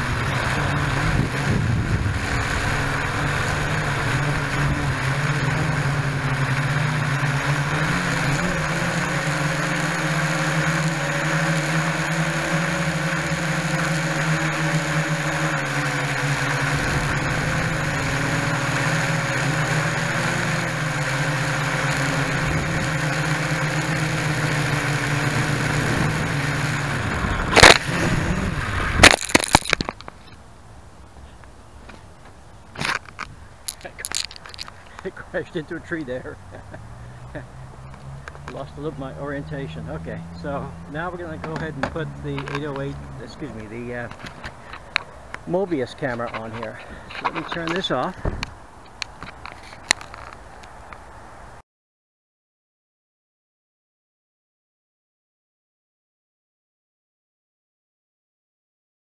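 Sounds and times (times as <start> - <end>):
quadcopter motors whining: 0.0 - 30.5, 31.1 - 51.2
sharp crack hitting tree: 27.5 - 28.1.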